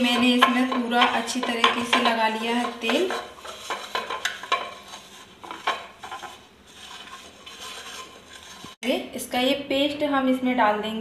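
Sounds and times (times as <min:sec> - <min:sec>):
fingers rubbing oil in pan: 0:00.0 - 0:08.8
light scrapes and clicks on pan: 0:00.1 - 0:08.8.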